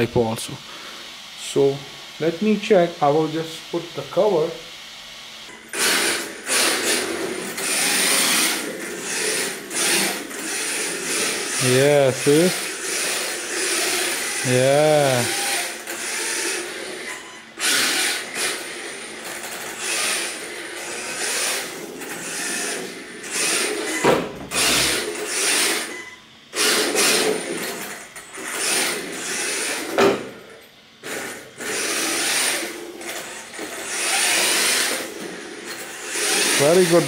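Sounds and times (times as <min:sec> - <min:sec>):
rc car motor and tyres sliding: 0:05.7 - 0:26.0, 0:31.1 - 0:37.0.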